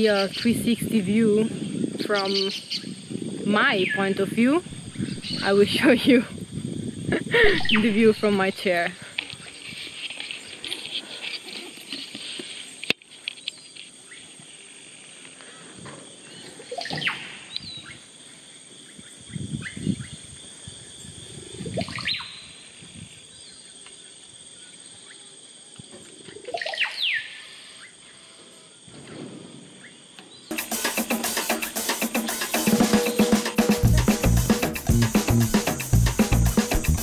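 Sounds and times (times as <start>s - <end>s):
birds calling with falling whistle: 7.4s - 8.1s
drum music: 30.5s - 37.0s.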